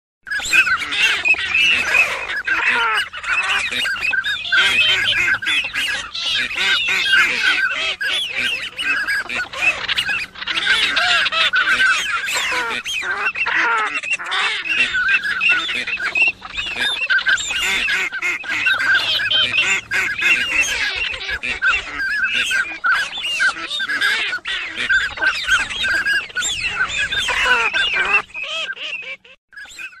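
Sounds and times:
flock of ducks calling: 0:00.3 - 0:30.0.

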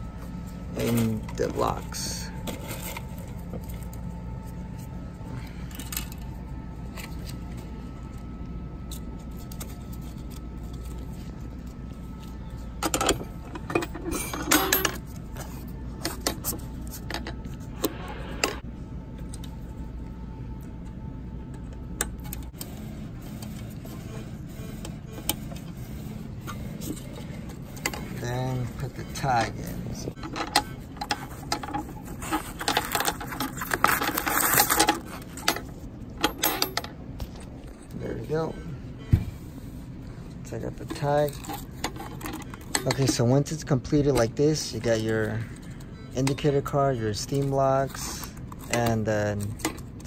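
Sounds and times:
low room hum: 0:00.0 - 0:50.0.

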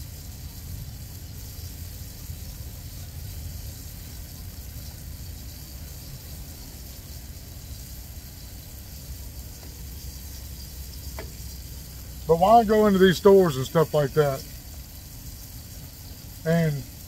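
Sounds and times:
engine idling: 0:00.0 - 0:17.0
steady high hiss: 0:00.0 - 0:17.0.

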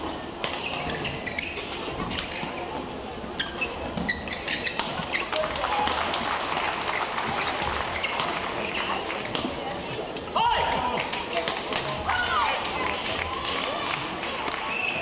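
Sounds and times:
arena crowd noise: 0:00.0 - 0:15.0
shoe squeaks on court: 0:00.5 - 0:05.4, 0:07.4 - 0:09.0.

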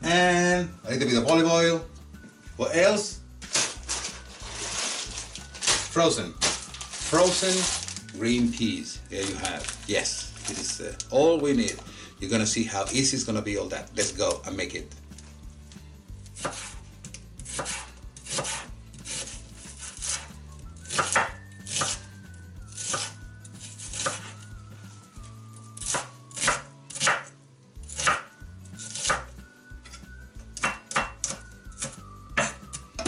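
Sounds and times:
knife chopping on plastic board: 0:16.4 - 0:16.8, 0:17.5 - 0:20.3, 0:20.9 - 0:22.0, 0:22.8 - 0:23.1, 0:25.8 - 0:27.3, 0:27.9 - 0:28.3, 0:30.6 - 0:32.6.

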